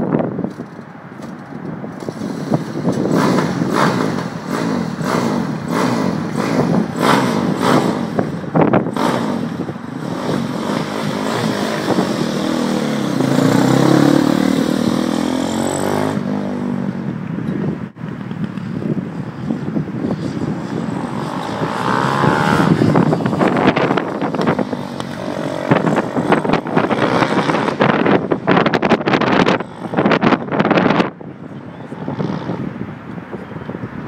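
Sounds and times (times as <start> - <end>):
kart engine revving: 2.0 - 16.8, 20.4 - 31.0.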